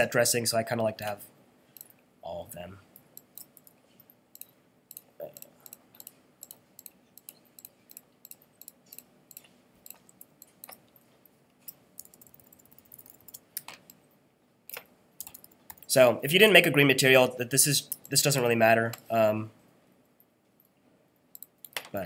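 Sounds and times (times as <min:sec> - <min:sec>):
mouse and keyboard clicks: 0:04.4 - 0:11.0.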